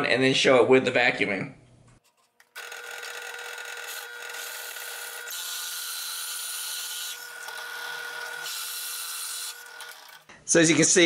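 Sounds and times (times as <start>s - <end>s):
drill bit boring into wood: 2.4s - 10.3s
drill press motor whine: 2.4s - 10.3s.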